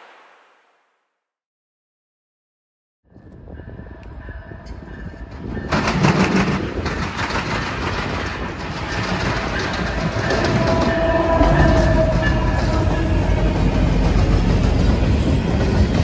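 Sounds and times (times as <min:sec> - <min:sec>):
freight train rumbling: 0:03.1 - 0:16.0.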